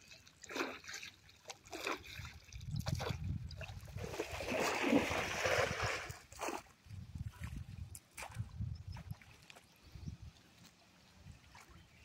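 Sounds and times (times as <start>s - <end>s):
water splashing from wading: 0.0s - 6.6s.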